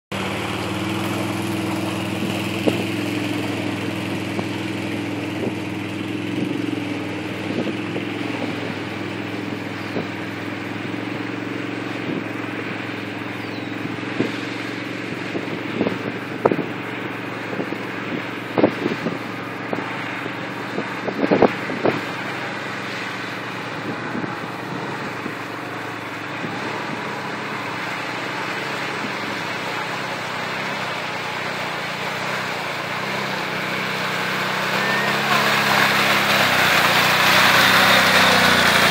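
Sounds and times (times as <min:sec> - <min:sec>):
atv engine running: 0:00.0 - 0:38.9.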